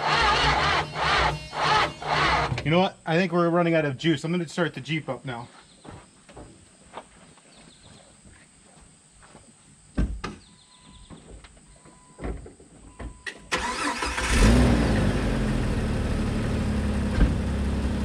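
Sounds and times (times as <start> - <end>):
car engine starting and idling: 0.0 - 2.7, 13.3 - 18.0
thumps: 0.0 - 2.7.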